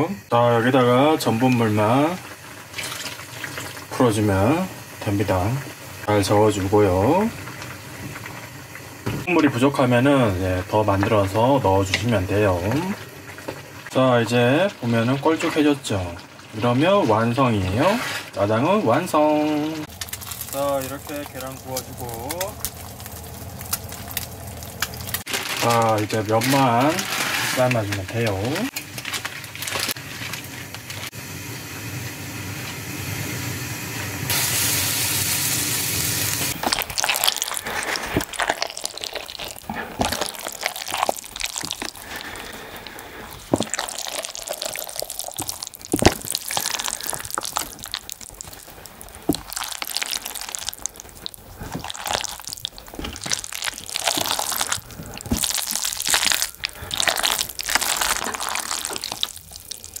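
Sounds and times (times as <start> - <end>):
water running and pouring: 0.7 - 31.2, 34.3 - 60.0
wet splashes: 36.5 - 60.0.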